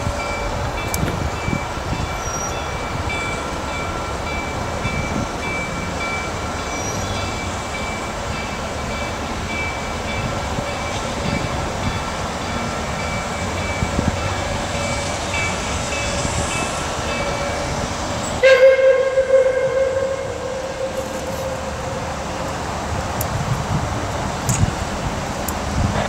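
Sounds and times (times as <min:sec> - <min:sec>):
steam locomotive whistle: 0:18.3 - 0:22.4.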